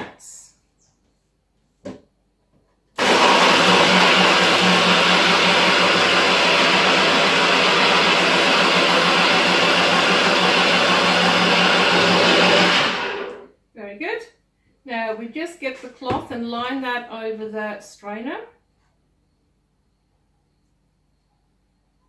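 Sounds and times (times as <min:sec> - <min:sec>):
blender running: 0:03.0 - 0:13.5.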